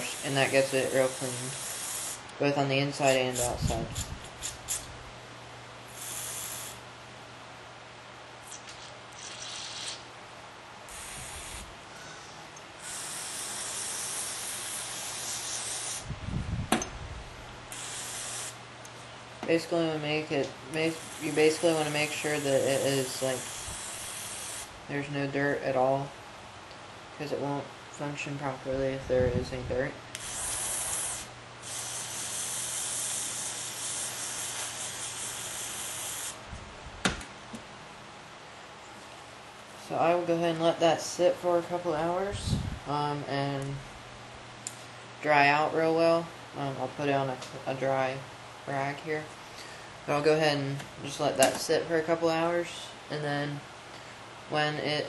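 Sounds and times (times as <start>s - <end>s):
aerosol spray hissing: 0.0s - 2.3s, 5.9s - 6.8s, 9.2s - 10.0s, 10.9s - 11.7s, 12.8s - 16.1s, 17.7s - 18.6s, 20.8s - 24.7s, 30.2s - 36.4s.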